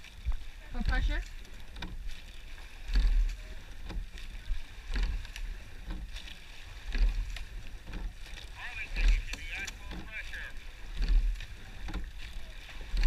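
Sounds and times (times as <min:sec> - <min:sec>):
water rushing and oar strokes: 0:00.0 - 0:13.0.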